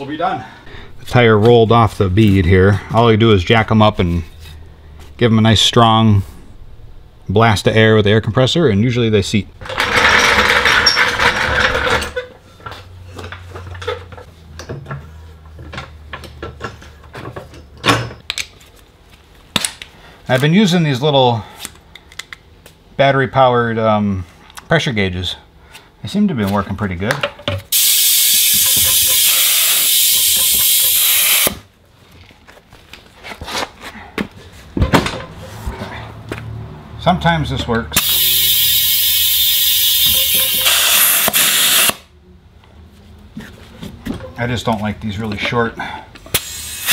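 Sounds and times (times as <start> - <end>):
floor jack clicking and creaking: 9.6 - 15.0
compressed air hissing into tire: 27.7 - 31.6, 38.0 - 42.0, 46.3 - 46.9.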